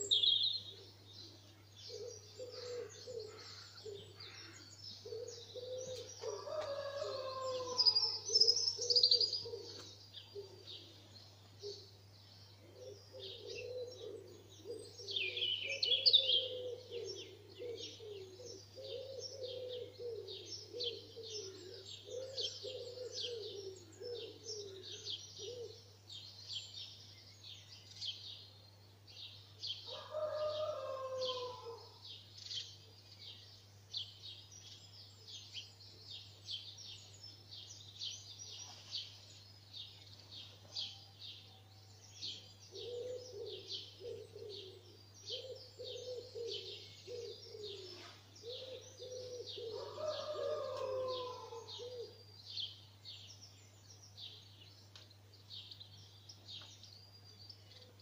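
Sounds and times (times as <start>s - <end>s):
songbirds chirping and trilling: 0.0s - 58.0s
pigeon cooing: 1.9s - 4.2s, 5.0s - 9.8s, 12.7s - 25.8s, 42.7s - 52.2s.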